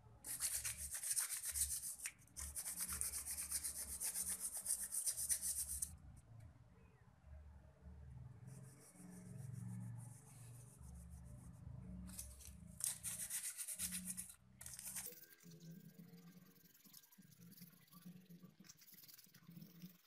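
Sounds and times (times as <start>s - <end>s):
foil scrubbing circuit board: 12.2s - 20.0s.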